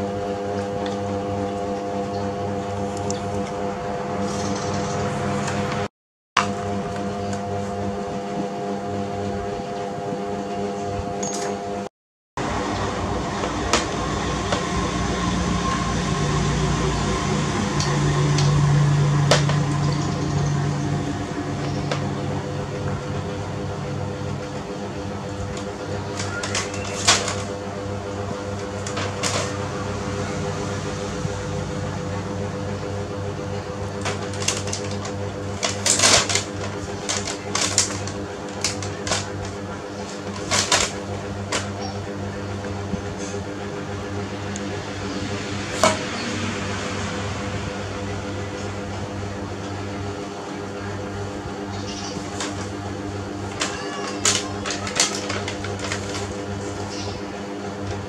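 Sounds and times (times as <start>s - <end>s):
steady low hum: 12.4s - 58.0s.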